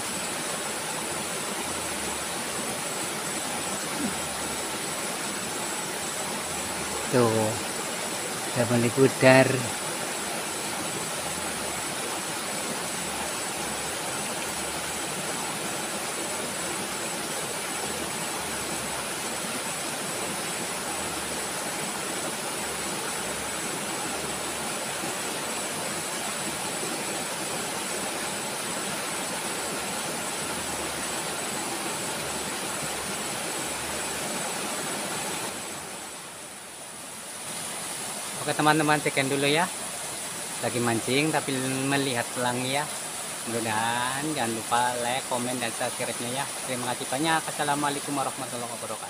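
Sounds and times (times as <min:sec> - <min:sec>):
river flowing over stones: 0:00.0 - 0:49.0.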